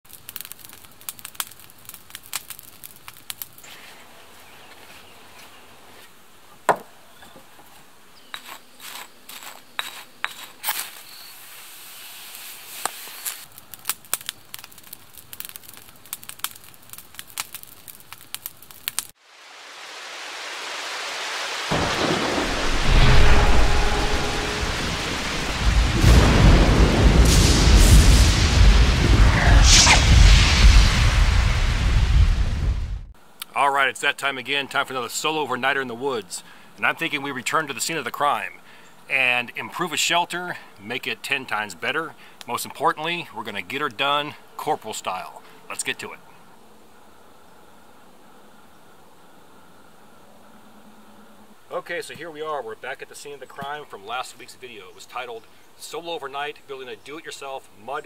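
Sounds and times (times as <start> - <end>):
campfire crackling: 0.0 - 6.4, 8.4 - 46.6
rain hissing: 10.5 - 33.4
thunder rumbling: 21.7 - 33.1.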